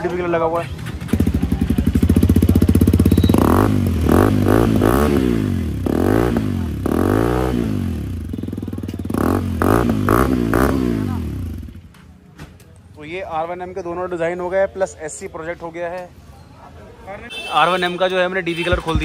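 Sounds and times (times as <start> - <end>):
motorcycle engine revving: 1.0 - 11.9.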